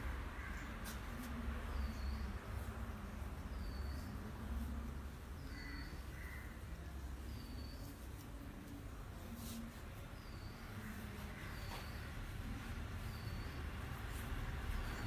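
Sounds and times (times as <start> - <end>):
birds calling: 5.3 - 7.9.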